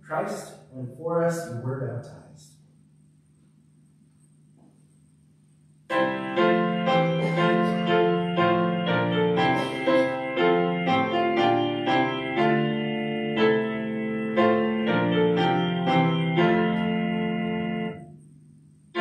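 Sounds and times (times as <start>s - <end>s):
faint low hum: 0.0s - 11.6s, 12.4s - 19.0s
piano playing hymn chords: 5.9s - 18.0s.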